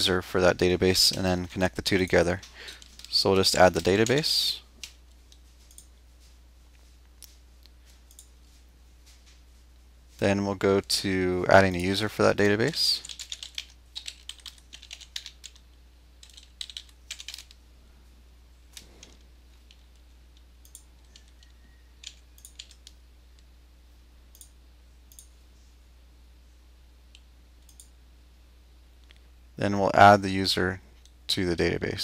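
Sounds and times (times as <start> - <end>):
steady low hum: 0.0 - 32.0
faint keyboard typing: 0.8 - 17.6, 18.7 - 23.5, 24.3 - 25.4, 27.1 - 28.0.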